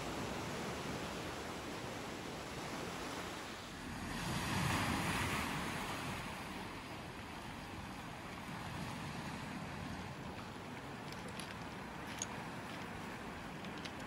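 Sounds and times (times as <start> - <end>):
sea surf washing over rocks: 0.0 - 14.0
wave breaking: 2.8 - 10.2.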